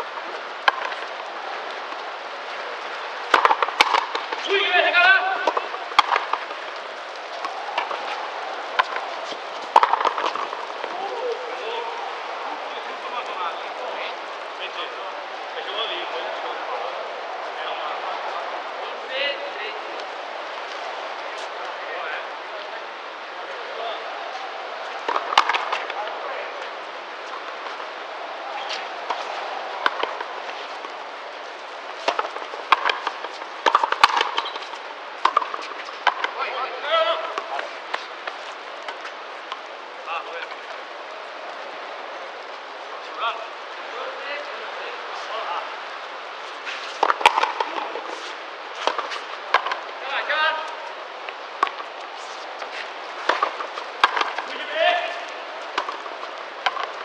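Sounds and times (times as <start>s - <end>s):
rackets striking rubber ball: 3.3s - 4.4s, 5.4s - 6.6s, 9.7s - 10.9s, 32.0s - 34.6s, 35.2s - 36.4s, 48.8s - 49.9s, 53.3s - 54.6s, 55.7s - 57.0s
ball hitting wall: 53.2s - 54.5s.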